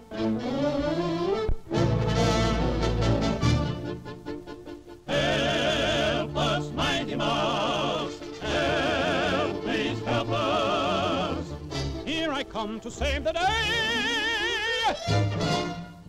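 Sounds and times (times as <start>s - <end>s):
background music: 0.0s - 16.0s
operatic singing: 5.0s - 15.8s.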